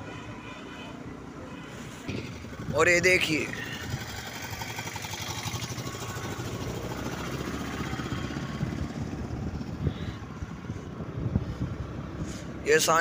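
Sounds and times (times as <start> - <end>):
road noise: 0.0 - 13.0
motorcycle engine running: 2.1 - 11.8.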